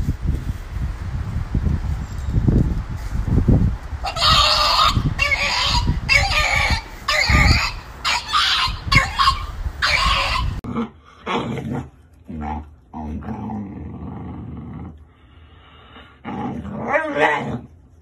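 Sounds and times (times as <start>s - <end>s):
dog screaming cries: 4.0s - 10.6s
low dog growl: 10.6s - 15.1s.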